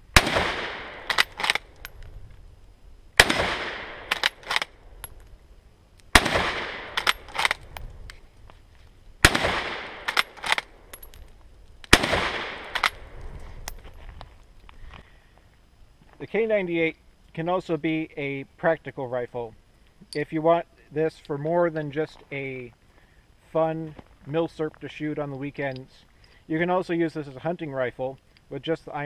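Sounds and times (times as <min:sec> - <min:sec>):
rifle shots with echo: 0:00.1 - 0:01.7, 0:03.2 - 0:04.8, 0:06.1 - 0:07.6, 0:09.2 - 0:11.1, 0:11.9 - 0:13.1
rifle bolt metallic clicks: 0:01.0 - 0:02.1, 0:03.9 - 0:05.3, 0:06.8 - 0:08.2, 0:09.9 - 0:13.0.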